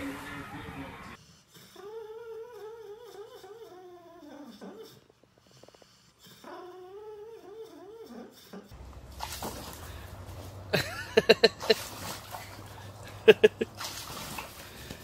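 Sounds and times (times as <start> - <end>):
dog whining in its sleep: 1.5 - 8.8.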